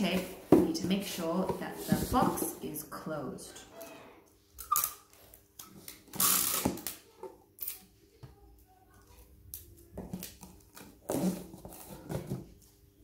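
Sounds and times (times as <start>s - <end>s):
sticky tape tearing: 4.6s - 5.3s, 5.9s - 7.0s.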